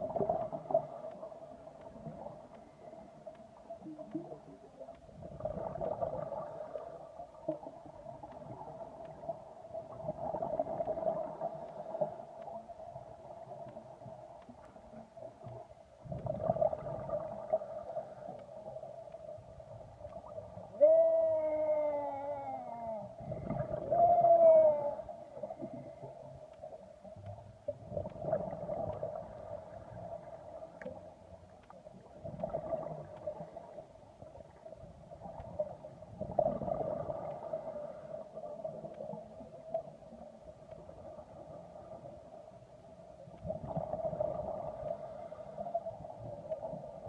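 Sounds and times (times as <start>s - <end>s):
underwater hum: 0.0s - 47.0s
regulator breathing and bubbles: 15.5s - 18.7s, 22.8s - 26.4s.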